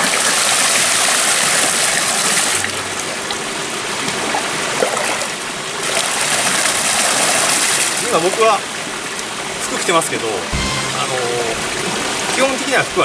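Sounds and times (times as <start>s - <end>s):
water splashing into a river: 3.9s - 8.8s.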